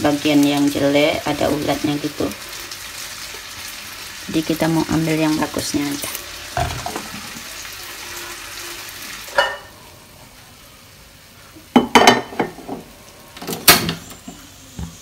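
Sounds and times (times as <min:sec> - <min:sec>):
saucepan clanking on burner grate: 0:06.0 - 0:07.5
gas hiss: 0:13.3 - 0:15.0.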